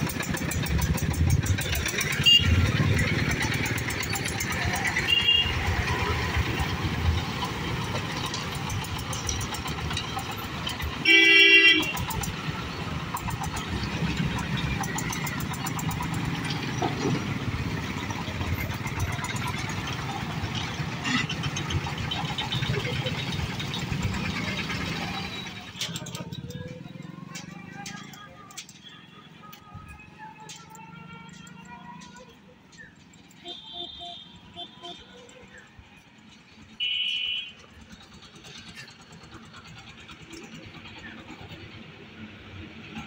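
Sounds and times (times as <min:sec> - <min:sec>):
road traffic passing: 0:00.0 - 0:43.0
vehicle horn honk: 0:02.2 - 0:02.6, 0:05.0 - 0:05.7, 0:11.0 - 0:12.0, 0:33.4 - 0:35.3, 0:36.8 - 0:37.6.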